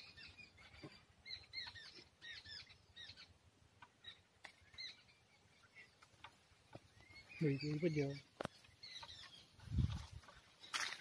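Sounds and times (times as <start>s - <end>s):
faint bird chirps: 0.0s - 11.0s.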